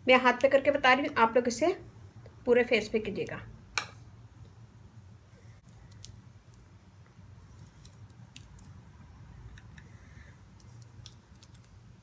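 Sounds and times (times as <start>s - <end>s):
wet clicks of cream rubbing: 5.9s - 8.8s, 10.5s - 11.9s.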